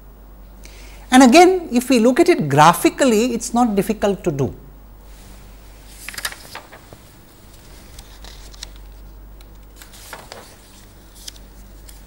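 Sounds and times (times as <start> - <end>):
paper rustling: 5.8 - 12.0.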